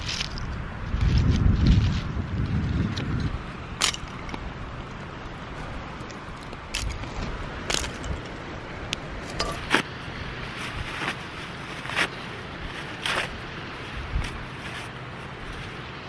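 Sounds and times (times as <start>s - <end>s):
twigs snapping: 0.0s - 4.5s, 6.0s - 9.9s.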